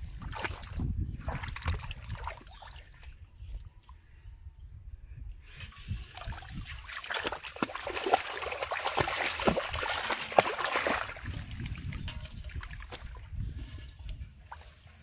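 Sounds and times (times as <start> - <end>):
water splashing and dripping: 0.0 - 3.7, 5.9 - 15.0.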